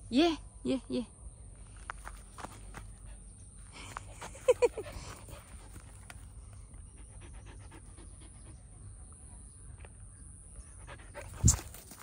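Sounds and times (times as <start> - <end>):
dog panting: 4.6 - 9.3, 10.8 - 11.8.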